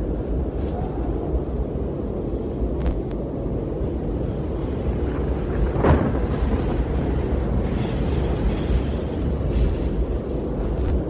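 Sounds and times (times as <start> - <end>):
strong wind blowing: 0.0 - 11.0.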